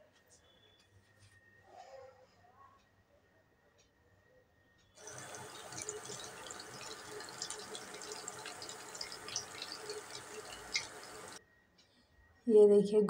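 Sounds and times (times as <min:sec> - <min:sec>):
oil sizzling and crackling: 0:05.0 - 0:11.4.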